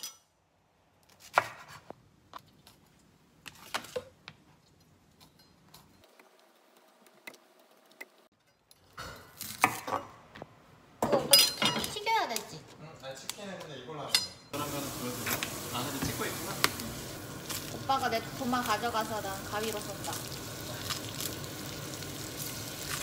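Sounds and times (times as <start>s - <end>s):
knife chopping on cutting board: 1.2s - 1.9s.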